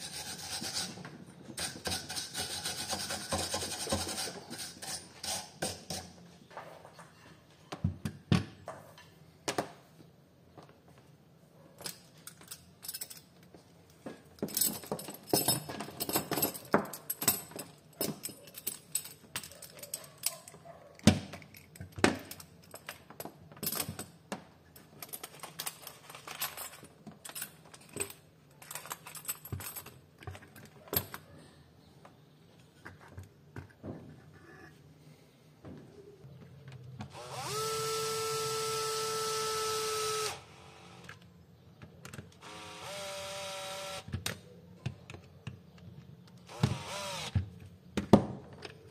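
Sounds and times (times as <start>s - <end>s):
metal tools clinking on workbench: 11.8s - 13.5s, 14.4s - 20.7s, 24.8s - 31.3s.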